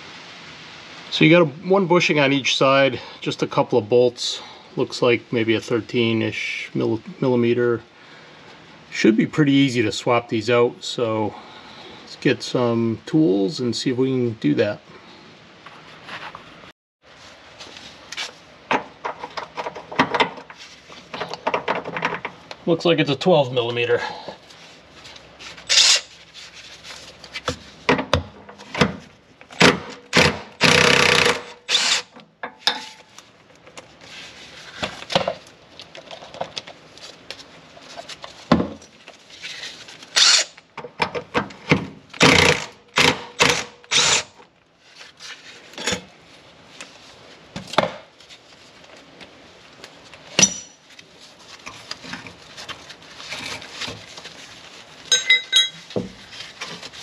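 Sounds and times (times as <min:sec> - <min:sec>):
impact wrench bursts: 0:25.7 - 0:26.1, 0:29.6 - 0:32.1, 0:40.1 - 0:40.6, 0:42.2 - 0:44.4
metal clinks: 0:55.1 - 0:55.9.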